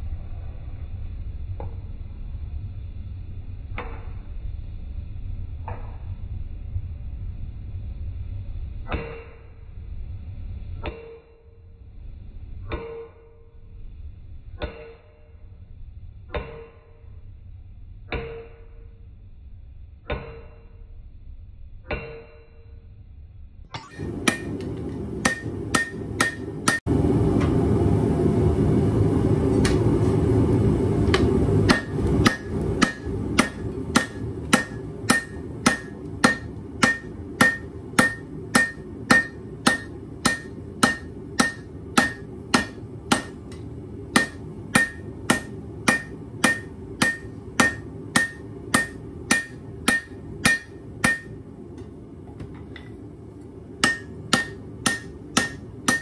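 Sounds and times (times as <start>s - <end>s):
hammer striking blade on anvil: 8.9s - 9.6s, 10.8s - 11.6s, 12.7s - 13.5s, 14.5s - 15.4s, 16.3s - 17.1s, 18.1s - 19.0s, 20.1s - 20.8s, 21.9s - 22.7s, 23.8s - 26.9s, 31.1s - 51.4s, 53.8s - 56.0s.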